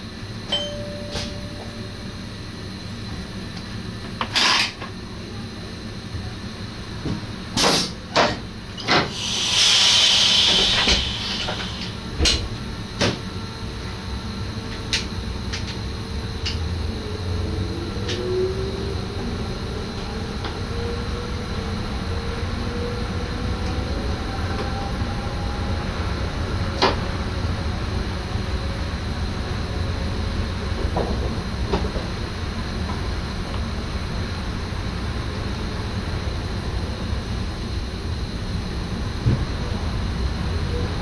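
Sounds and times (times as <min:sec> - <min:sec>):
low train rumble: 0:00.0 - 0:04.2, 0:04.8 - 0:41.0
electric train drive whine: 0:00.0 - 0:07.6, 0:08.5 - 0:41.0
air hiss: 0:08.9 - 0:12.0.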